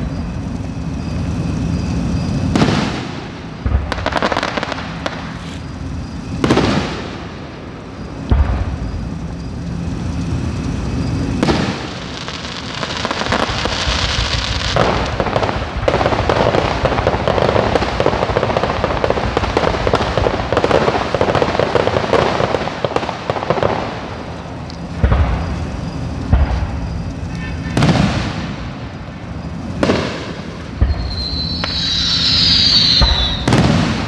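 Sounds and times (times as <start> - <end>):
dense crackling of tiny pops: 2.3 - 31.8
firework shell bursting: 29.8 - 34.0.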